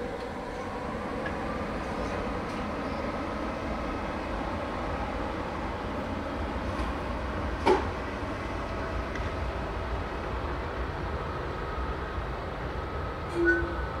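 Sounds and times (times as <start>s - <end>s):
train running rumble: 0.0s - 14.0s
train horn toot: 13.3s - 14.0s.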